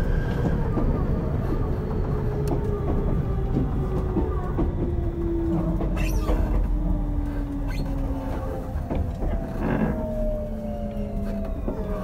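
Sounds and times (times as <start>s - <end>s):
train wheels rumbling on rail: 0.0s - 12.0s
track clacks: 2.0s - 10.2s.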